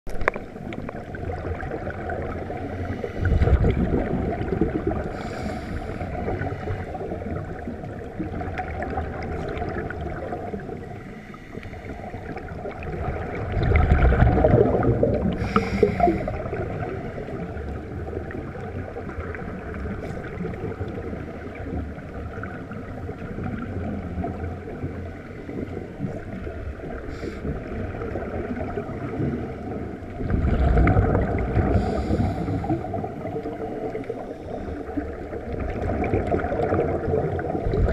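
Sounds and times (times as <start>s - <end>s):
underwater rumble and hiss: 0.1s - 37.9s
diver's exhaled bubbles: 0.2s - 10.9s, 12.0s - 17.6s, 27.0s - 37.9s.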